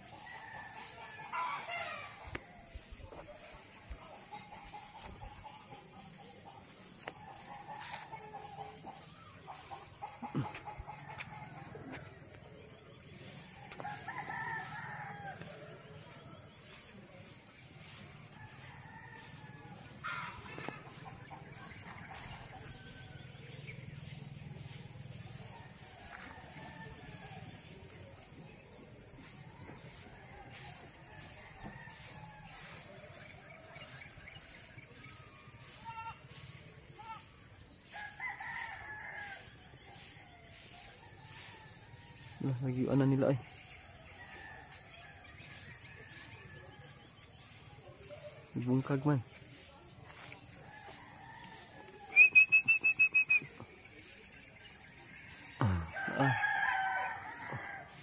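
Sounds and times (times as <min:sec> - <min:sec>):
roosters crowing: 0:00.0 - 0:48.1, 0:48.9 - 0:58.0
chickens clucking: 0:00.8 - 0:13.8.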